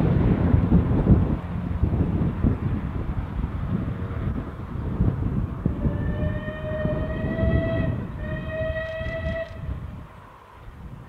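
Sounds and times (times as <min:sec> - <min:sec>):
low rumble: 0:00.0 - 0:11.0
steam locomotive whistle blasts: 0:05.8 - 0:09.8.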